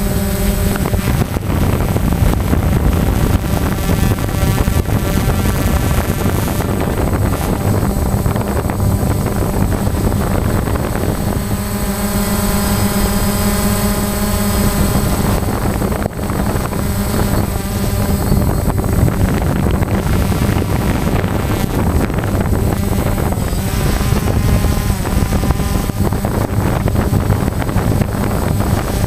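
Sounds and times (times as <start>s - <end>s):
drone propellers humming: 0.0s - 29.0s.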